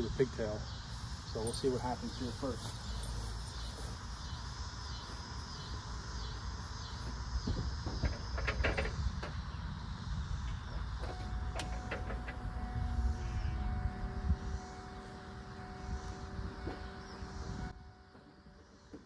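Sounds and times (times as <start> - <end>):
diesel engine starter cranking: 10.4 - 17.0.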